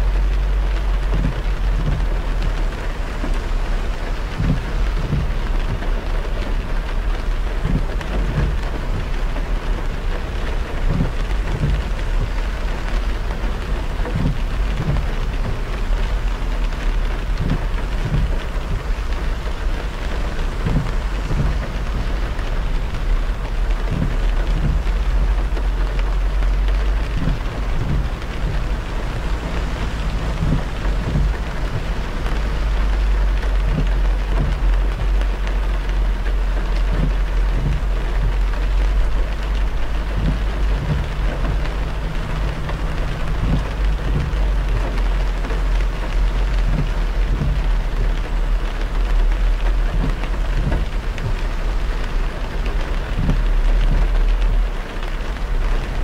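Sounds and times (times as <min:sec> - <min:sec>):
rain and tyre spray hiss: 0:00.0 - 0:56.0
road rumble: 0:00.0 - 0:56.0
low thumps: 0:23.7 - 0:35.6.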